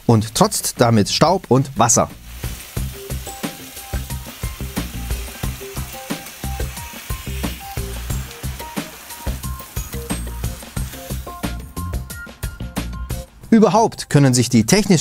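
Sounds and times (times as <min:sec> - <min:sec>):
water spraying from hose: 0:00.4 - 0:12.2
synth music with steady beat: 0:02.7 - 0:13.4.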